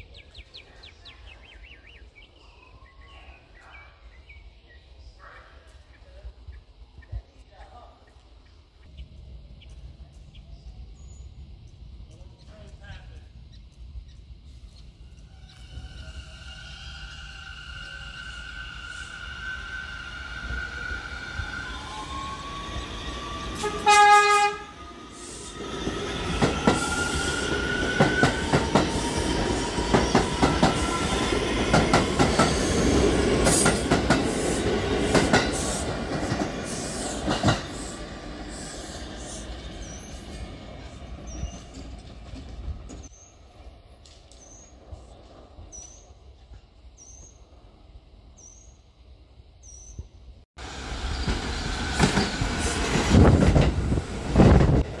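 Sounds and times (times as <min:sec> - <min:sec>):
rising train whine: 0:00.0 - 0:55.0
train horn blast: 0:23.6 - 0:24.9
train wheels clacking over rail joints: 0:27.8 - 0:32.6, 0:33.4 - 0:37.8, 0:51.2 - 0:54.8.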